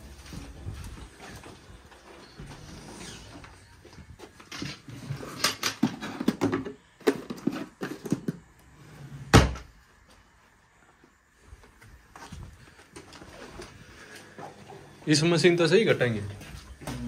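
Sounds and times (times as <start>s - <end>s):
items clicking and knocking in drawer: 4.4s - 8.5s.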